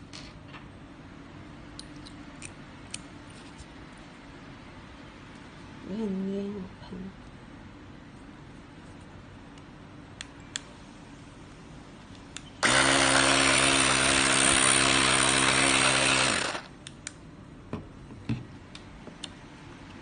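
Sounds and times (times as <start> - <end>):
tyre inflator compressor running: 12.6 - 16.7.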